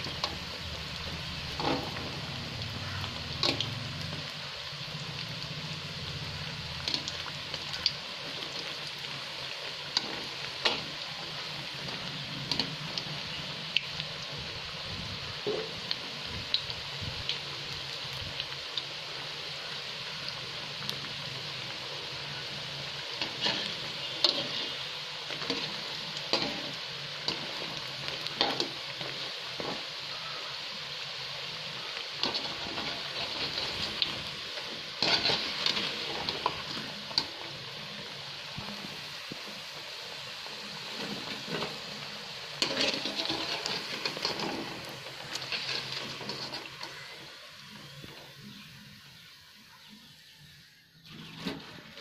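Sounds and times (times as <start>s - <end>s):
food deep-frying in oil: 0.0s - 52.0s.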